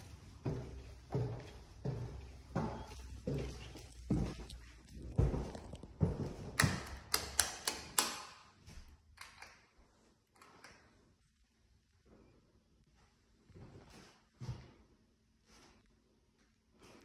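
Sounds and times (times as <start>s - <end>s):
footsteps on wooden floorboards: 0.0s - 7.0s.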